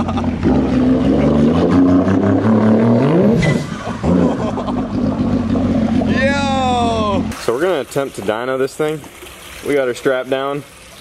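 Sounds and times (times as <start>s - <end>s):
jet ski engine revving: 0.0s - 7.6s.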